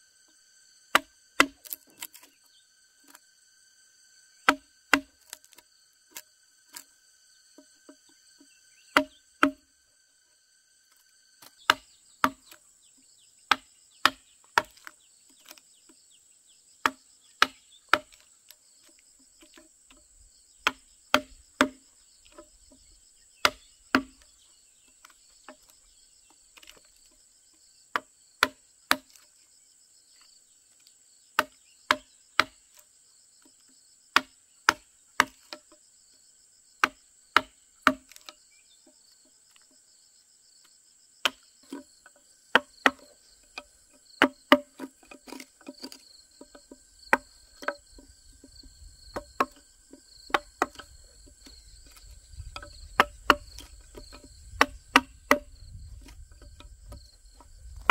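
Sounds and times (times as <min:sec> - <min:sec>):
mallet striking chisel: 0:00.9 - 0:02.2, 0:04.5 - 0:05.6, 0:07.6 - 0:09.6, 0:11.4 - 0:12.6, 0:13.5 - 0:14.9, 0:16.8 - 0:18.2, 0:20.6 - 0:22.4, 0:23.4 - 0:24.2, 0:31.4 - 0:32.6, 0:36.8 - 0:38.3, 0:41.2 - 0:48.5, 0:49.1 - 0:57.9.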